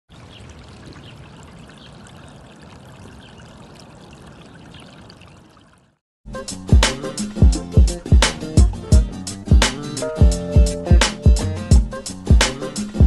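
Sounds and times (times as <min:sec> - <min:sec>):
shallow water flowing over ledge: 0:00.1 - 0:06.0
music with heavy bass beat: 0:06.3 - 0:13.0.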